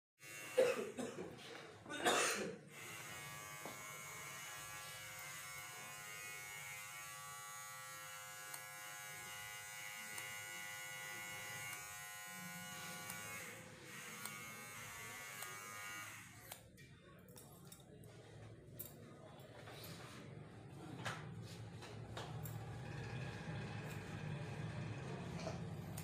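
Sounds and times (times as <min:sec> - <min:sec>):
small electric motor buzzing: 0:00.2 - 0:00.6, 0:02.7 - 0:16.6.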